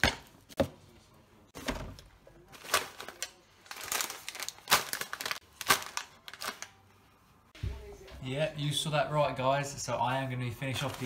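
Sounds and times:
plastic packets crinkling: 2.5s - 6.9s.

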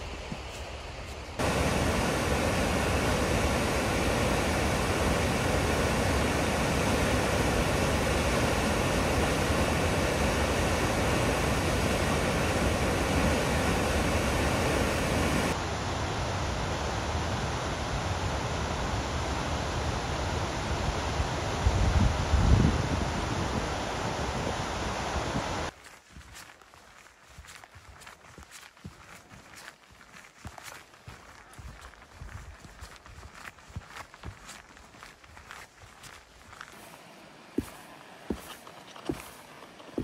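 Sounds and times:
waterfall rushing: 1.4s - 15.6s.

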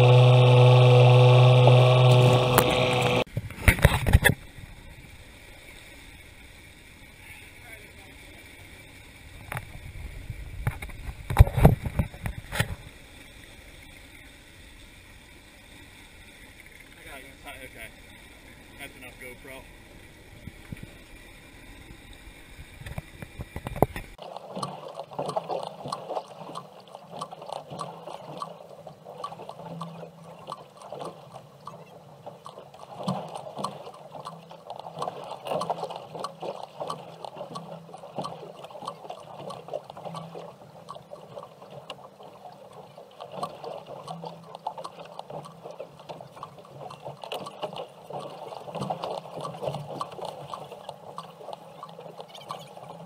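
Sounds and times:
water splashing against boat: 0.0s - 53.0s
small crackles and ticks: 21.9s - 53.0s.

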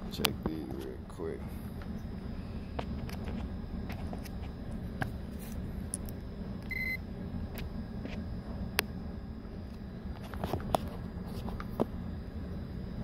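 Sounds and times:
low rumble: 0.0s - 13.0s
tester continuity beep: 6.7s - 7.0s.

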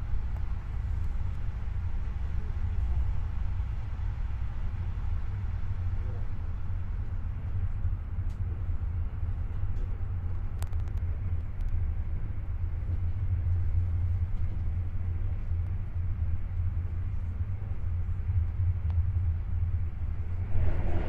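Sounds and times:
train rumbling from inside carriage: 0.0s - 21.0s
passing train rushing: 20.2s - 21.0s.

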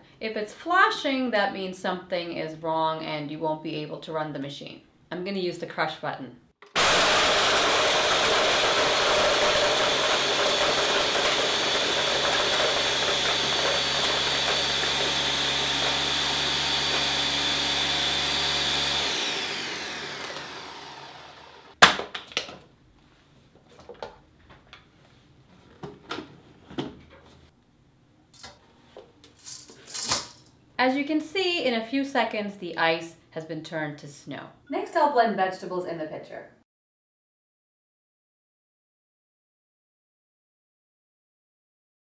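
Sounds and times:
blender crushing ice: 6.6s - 21.8s.

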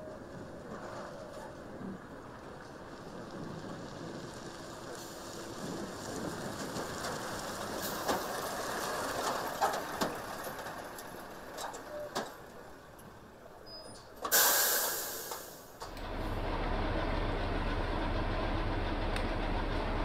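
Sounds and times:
air brakes hissing: 13.8s - 15.8s.

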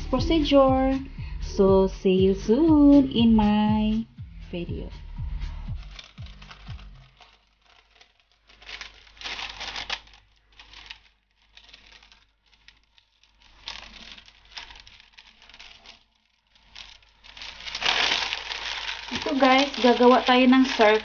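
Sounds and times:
scissors cutting paper: 5.7s - 16.0s
paper crinkling and rustling: 5.7s - 21.0s.

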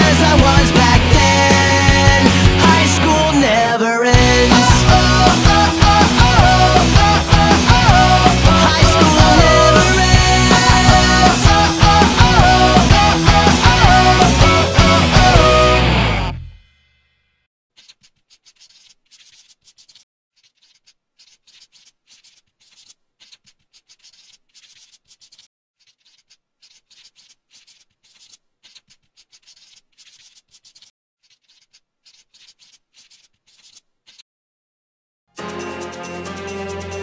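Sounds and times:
marker scratching on paper: 17.8s - 34.2s.

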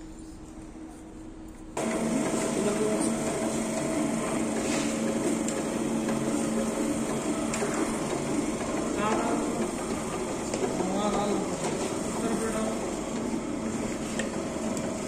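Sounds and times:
machine tool motor hum: 1.8s - 15.0s.

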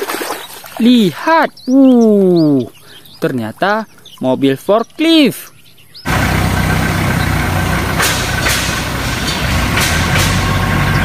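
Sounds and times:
forklift engine humming: 6.0s - 11.0s.

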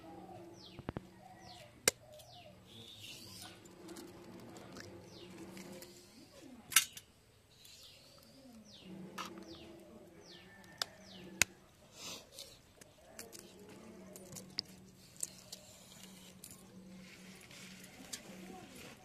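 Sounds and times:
doves cooing: 0.0s - 19.0s
small birds chirping: 0.0s - 19.0s.

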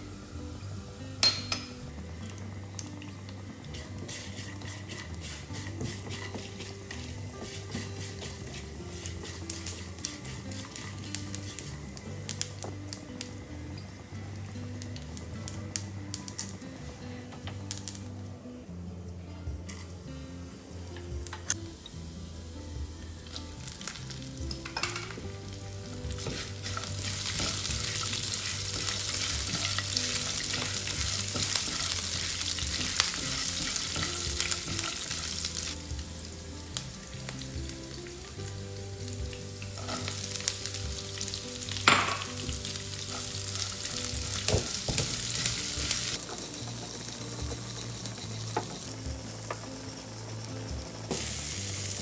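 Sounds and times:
oil sizzling in frying pan: 0.0s - 18.2s, 19.7s - 52.0s
spatula stirring onion: 3.6s - 12.0s, 25.8s - 35.8s, 42.5s - 49.9s.

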